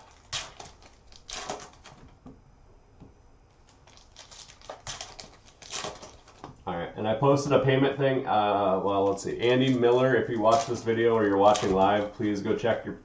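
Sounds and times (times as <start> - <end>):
foil wrapper crinkling and tearing: 0.0 - 2.1, 3.6 - 6.6, 9.0 - 12.8.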